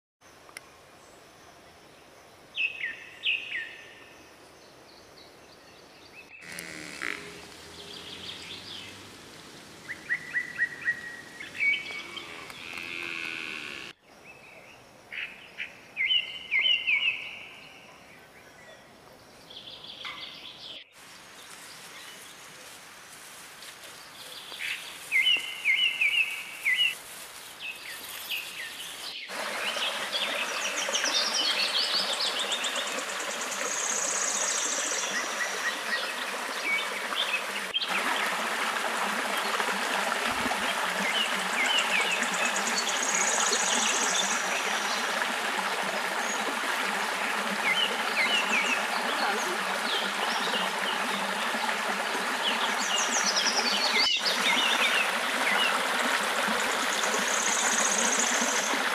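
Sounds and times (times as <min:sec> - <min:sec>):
birds chirping: 0:05.0 - 0:15.3
stream running over rocks: 0:06.4 - 0:14.0, 0:21.0 - 0:58.9.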